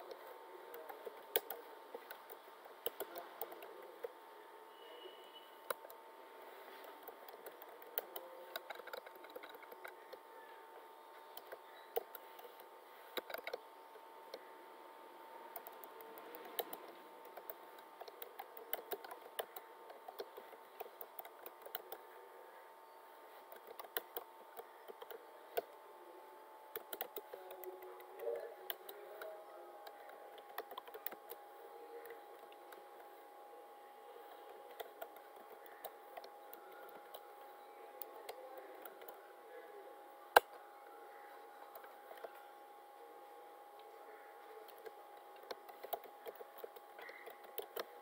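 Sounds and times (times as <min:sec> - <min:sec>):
computer keyboard typing: 0:00.0 - 0:04.1, 0:06.8 - 0:10.2, 0:11.3 - 0:13.6, 0:15.5 - 0:22.2, 0:23.4 - 0:25.8, 0:26.7 - 0:33.2, 0:34.2 - 0:39.3, 0:41.6 - 0:42.4, 0:44.6 - 0:48.0
faint steady hum: 0:00.0 - 0:48.0.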